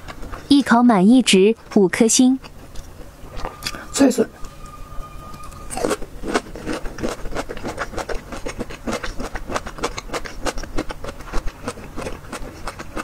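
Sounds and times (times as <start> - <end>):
crunchy chewing: 0.0 - 0.8, 1.5 - 3.8, 5.7 - 13.0.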